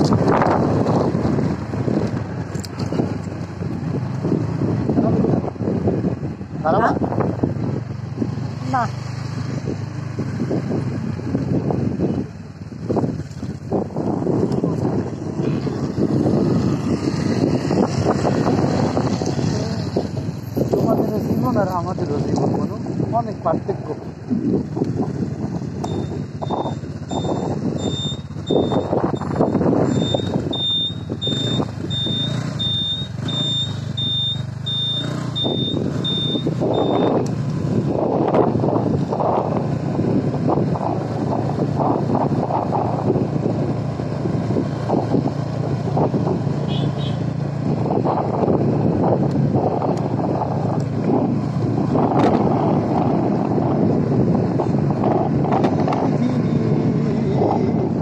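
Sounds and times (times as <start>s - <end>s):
wind buffeting microphone: 0.0s - 8.6s, 9.2s - 32.4s, 35.4s - 46.7s, 47.3s - 58.0s
low engine hum: 0.0s - 58.0s
road vehicle rumble: 0.0s - 58.0s
high electronic beep: 25.8s - 37.2s.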